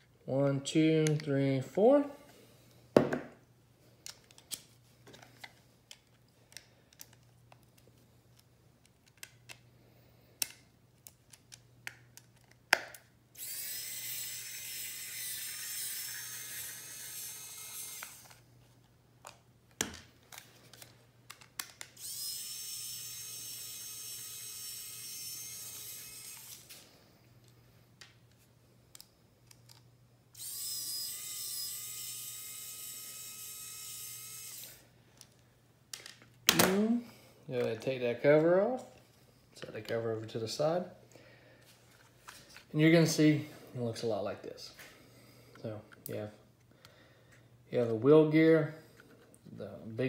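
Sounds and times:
cordless screwdriver whining: 0:13.4 - 0:18.4, 0:22.0 - 0:26.8, 0:30.4 - 0:34.8.

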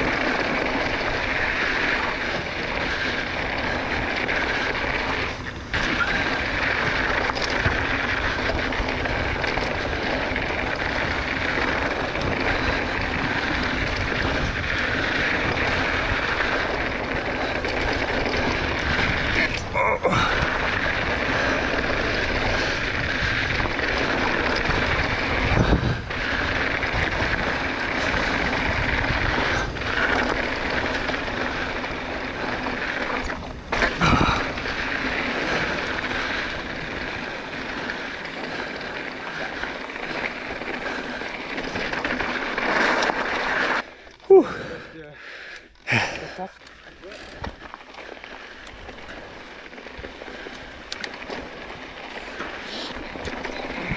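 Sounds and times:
wind buffeting microphone: 0:00.0 - 0:43.0
bike tyres crunching on gravel: 0:00.0 - 0:53.9.

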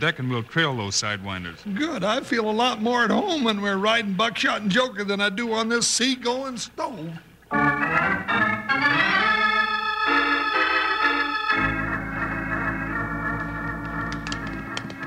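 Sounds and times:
organ chords: 0:06.6 - 0:15.0.

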